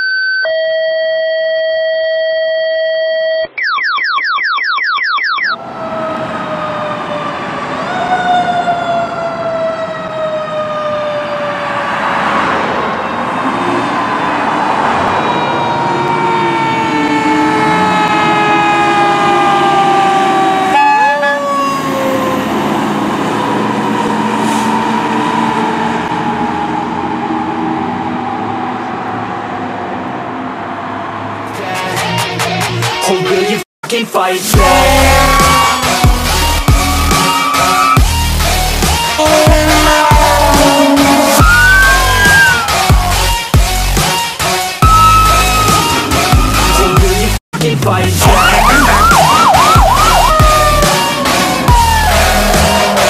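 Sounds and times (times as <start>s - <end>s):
fire truck siren wailing: 5.1s - 31.8s, 34.6s - 47.4s, 48.2s - 53.0s
heavy truck engine: 11.1s - 32.3s, 34.6s - 53.0s
rising electronic sweeps: 34.6s - 43.3s, 44.8s - 47.3s, 48.2s - 53.0s.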